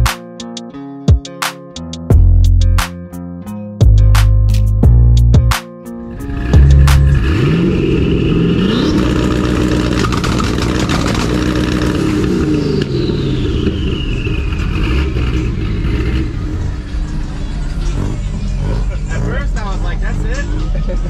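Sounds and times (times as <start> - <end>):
car engine revving with rapid pops: 6.4 - 16.6, 17.8 - 20.9.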